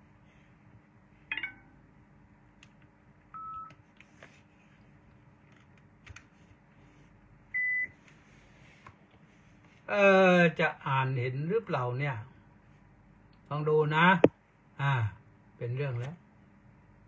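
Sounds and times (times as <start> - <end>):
faint steady hum: 0.0 - 17.0
multi-tone chirp: 1.3 - 1.8.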